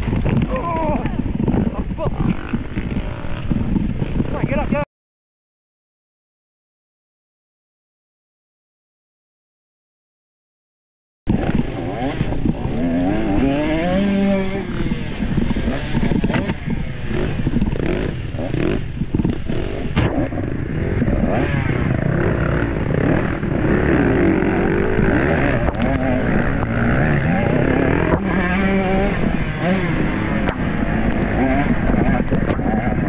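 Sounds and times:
dirt bike engine revving: 0:02.0 - 0:04.3, 0:11.3 - 0:33.0.

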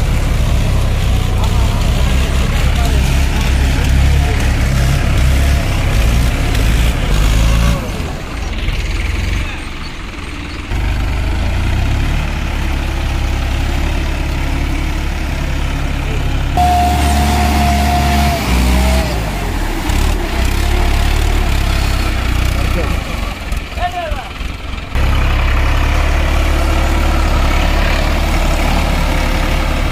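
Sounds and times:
tractor diesel engine under load: 0:00.0 - 0:29.9
high whine: 0:16.6 - 0:20.2.

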